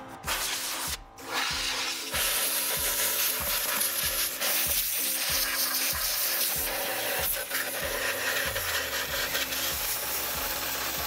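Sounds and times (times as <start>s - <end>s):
background music with steady beat: 0.0s - 11.0s
compressed air hissing: 0.2s - 11.0s.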